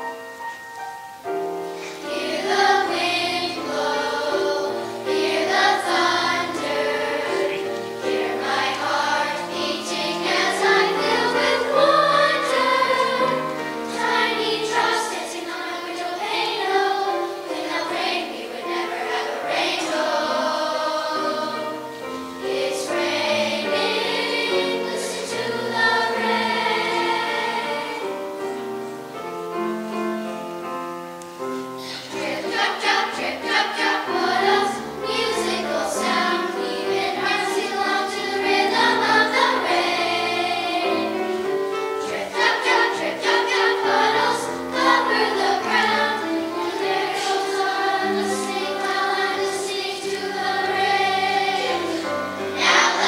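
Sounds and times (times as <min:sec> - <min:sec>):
children's choir singing: 0:00.0 - 0:53.0.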